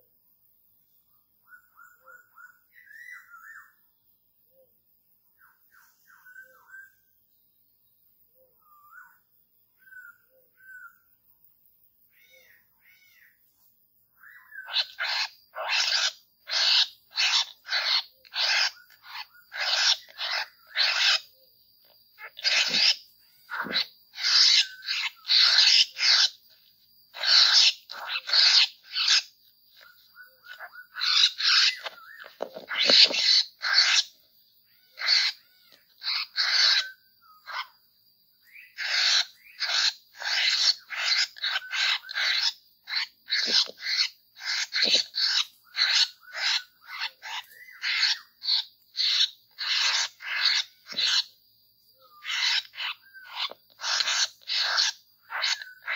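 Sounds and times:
birds harsh chattering calls: 14.2 - 37.8, 38.4 - 51.4, 52.0 - 55.9.

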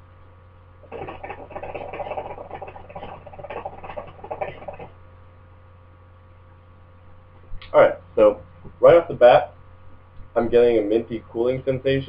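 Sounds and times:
hookah water bubbling: 0.8 - 5.0.

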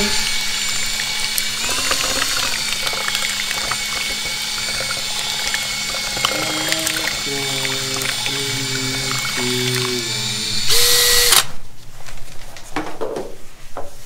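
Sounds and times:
drill mixing paddle whirring: 0.0 - 11.5
paddle scraping against plastic cup: 1.3 - 10.6.

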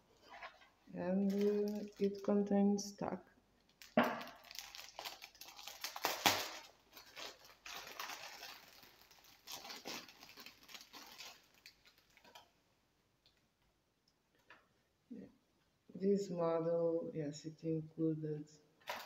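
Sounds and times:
plastic wrapping crinkling: 0.2 - 2.5, 3.6 - 12.6.

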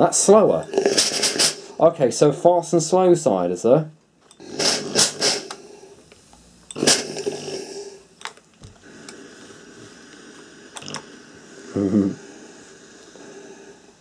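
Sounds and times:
steam iron hissing: 4.4 - 14.0.

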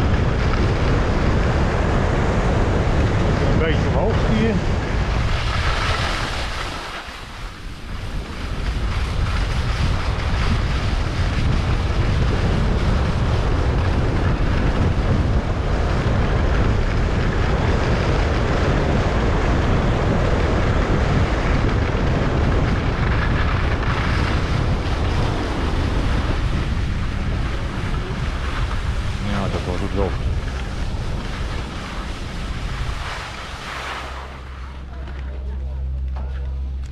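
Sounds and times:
skis scraping on snow: 0.0 - 35.5
wind buffeting microphone: 0.0 - 36.9.

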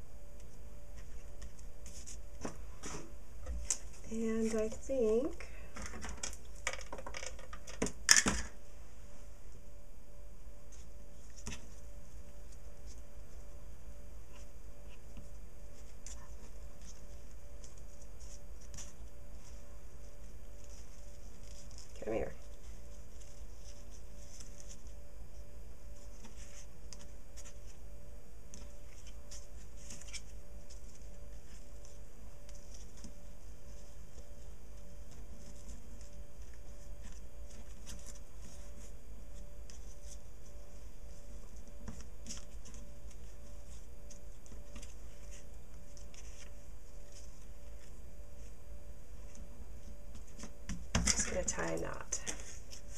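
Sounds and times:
faint room hum: 0.0 - 52.9
twine rustling against cardstock: 0.3 - 7.9, 14.2 - 27.8, 28.5 - 48.6, 49.2 - 52.9
paper rustling and tapping: 5.7 - 8.4, 41.1 - 47.9.

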